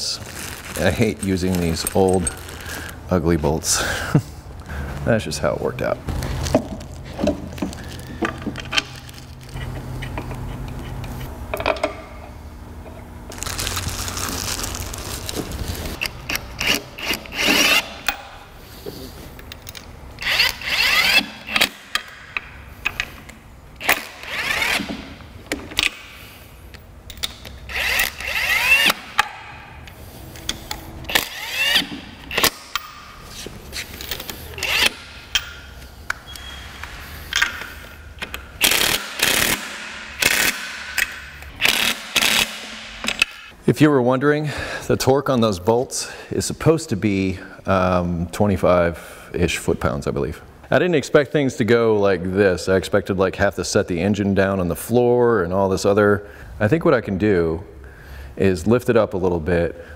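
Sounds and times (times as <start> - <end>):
cordless drill whirring: 20.2 - 21.4, 23.8 - 25.0, 27.7 - 29.0, 31.1 - 32.5, 34.6 - 35.0.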